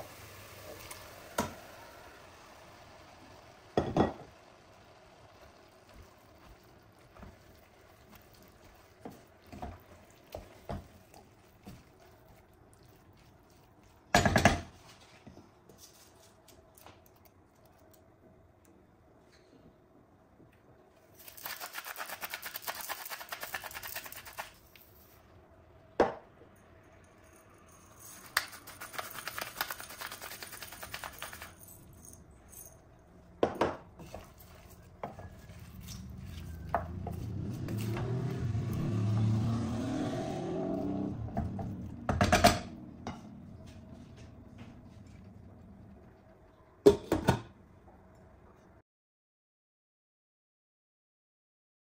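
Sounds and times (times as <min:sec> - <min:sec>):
vegetables stirred in steel pot: 0:02.3 - 0:15.2, 0:33.9 - 0:38.9.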